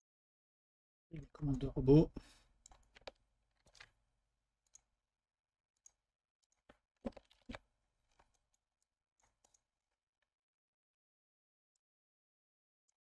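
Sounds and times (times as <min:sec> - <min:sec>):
keyboard and mouse clicks: 0:02.6 - 0:04.0.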